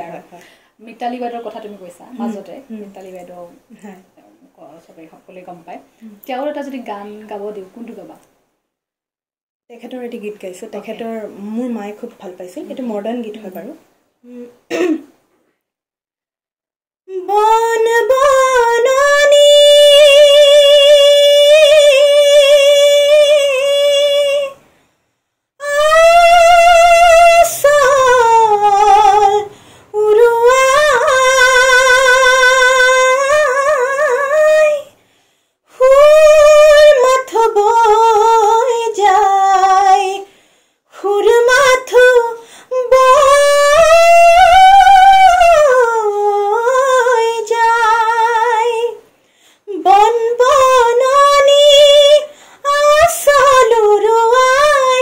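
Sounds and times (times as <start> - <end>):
woman singing unaccompanied: 0.0 - 5.4, 17.1 - 24.6, 25.6 - 35.0, 35.7 - 40.3, 40.9 - 49.1, 49.7 - 55.0.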